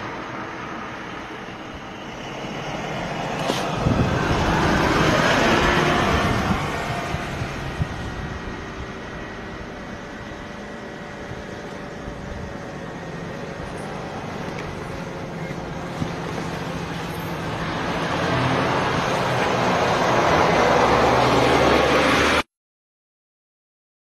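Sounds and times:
vehicle passing by: 0:02.0 - 0:09.3, 0:15.8 - 0:22.4.

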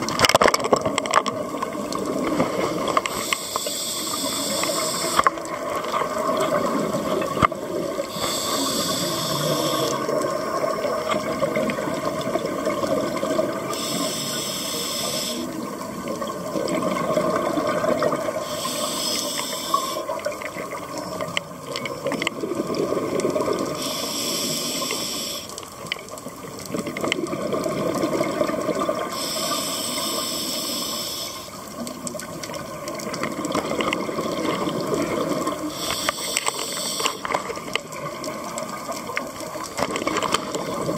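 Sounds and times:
hissing regulator inhalations: 0:03.0 - 0:05.4, 0:08.0 - 0:10.1, 0:13.7 - 0:15.6, 0:18.4 - 0:20.1, 0:23.8 - 0:25.6, 0:29.1 - 0:31.6, 0:35.7 - 0:37.4
rush of exhaled bubbles: 0:04.5 - 0:13.9, 0:15.1 - 0:18.6, 0:21.7 - 0:23.9, 0:26.7 - 0:29.2, 0:31.8 - 0:35.9, 0:37.3 - 0:40.9.

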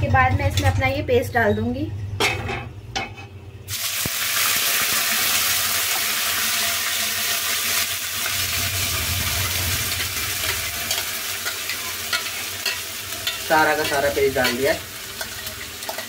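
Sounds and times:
paste frying in hot oil: 0:03.7 - 0:16.0.

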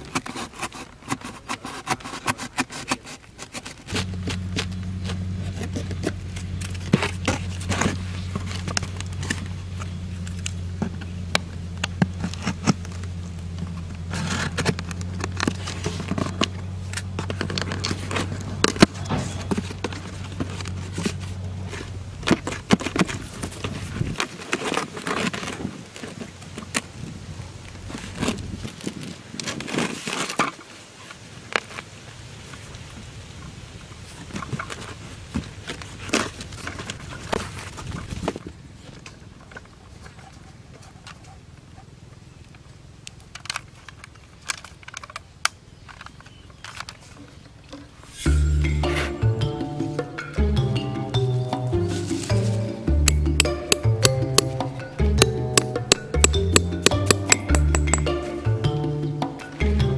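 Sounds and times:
utility knife cutting cardboard: 0:00.0 - 0:09.5, 0:11.9 - 0:21.4, 0:51.9 - 0:58.2
cardboard being bent and handled: 0:00.0 - 0:32.0, 0:34.0 - 0:40.2, 0:51.3 - 0:58.3.

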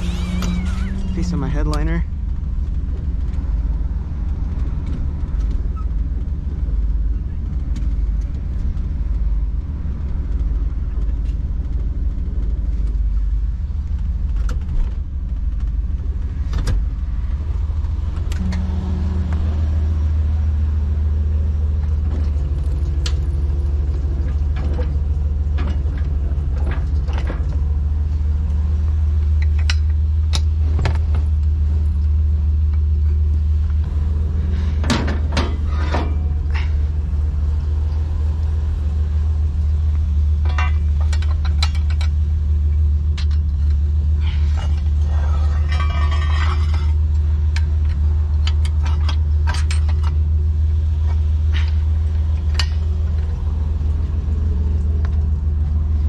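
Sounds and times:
truck engine running: 0:00.0 - 0:56.0
clicks and metal knocks: 0:34.8 - 0:36.7, 0:40.3 - 0:50.4, 0:51.0 - 0:53.4.

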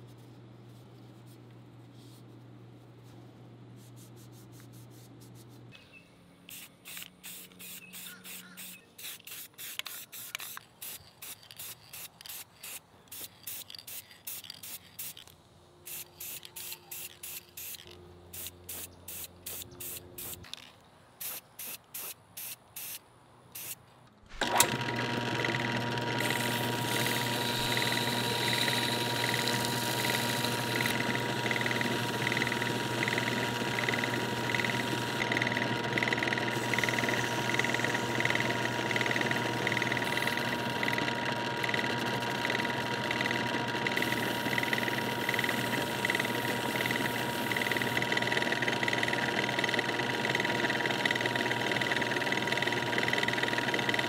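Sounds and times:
sanding sponge on spinning metal: 0:06.5 - 0:15.3, 0:26.2 - 0:41.0, 0:43.1 - 0:49.4
spray paint can hissing: 0:06.5 - 0:20.5, 0:21.2 - 0:23.0, 0:23.6 - 0:23.8, 0:26.2 - 0:30.9, 0:40.0 - 0:40.2, 0:44.0 - 0:48.0
small lathe running: 0:24.4 - 0:54.0.

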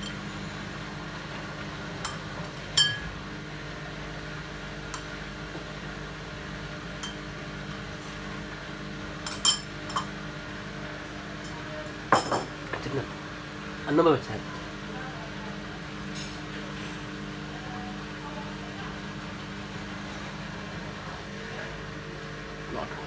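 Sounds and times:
washing machine spinning: 0:00.0 - 0:23.0.

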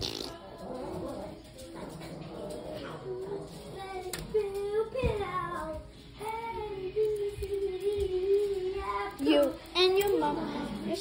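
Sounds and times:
child singing: 0:03.0 - 0:11.0.

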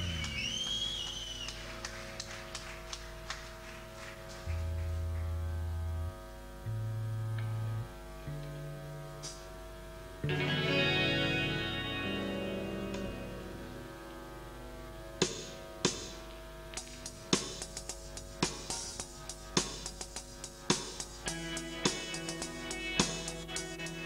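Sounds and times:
electric guitar drone: 0:00.0 - 0:01.1, 0:04.0 - 0:16.8, 0:21.2 - 0:24.0
long held low notes: 0:04.4 - 0:16.4
guitar chord: 0:10.2 - 0:15.3, 0:21.3 - 0:24.0.

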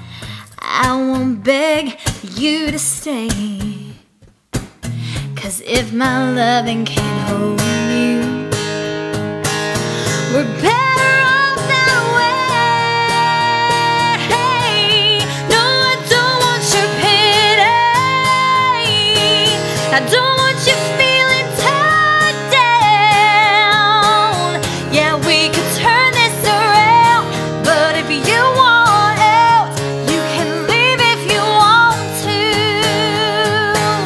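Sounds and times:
woman singing a ballad: 0:00.1 - 0:04.1, 0:05.2 - 0:08.8, 0:09.9 - 0:34.0
strummed acoustic guitar: 0:04.5 - 0:34.0.

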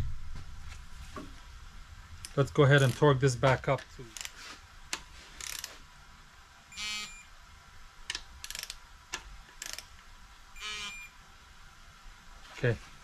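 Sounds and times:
torque wrench ratcheting: 0:02.2 - 0:03.1, 0:04.1 - 0:04.4, 0:05.4 - 0:05.7, 0:08.4 - 0:08.8, 0:09.5 - 0:09.9
short beeps: 0:06.7 - 0:07.3, 0:10.6 - 0:11.1.

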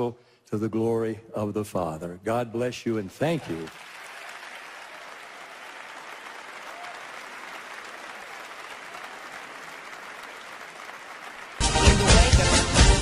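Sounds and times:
audience applauding: 0:03.3 - 0:13.0
loud music with a beat: 0:11.6 - 0:13.0.

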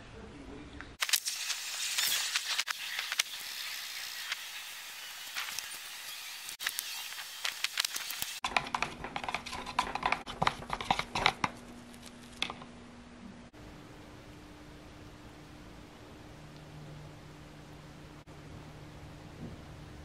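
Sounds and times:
steady low hum: 0:10.4 - 0:20.0.

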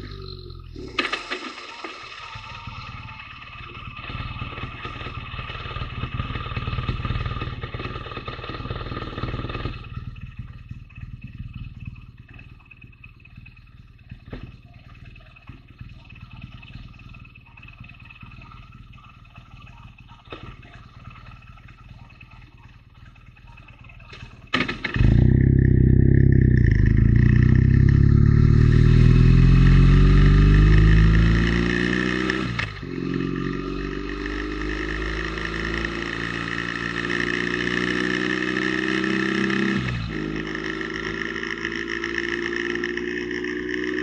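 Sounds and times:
motorcycle engine accelerating: 0:00.0 - 0:44.0.

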